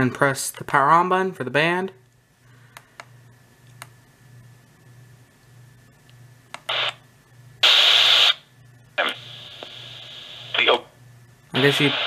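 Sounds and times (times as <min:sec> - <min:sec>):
radio static: 0:06.7 - 0:07.0, 0:07.6 - 0:08.4, 0:09.0 - 0:10.9, 0:11.6 - 0:12.0.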